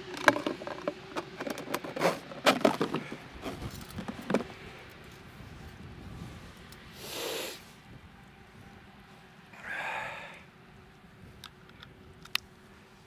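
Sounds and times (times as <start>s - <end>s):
person breathing noisily: 6.9s - 7.7s, 9.6s - 10.5s.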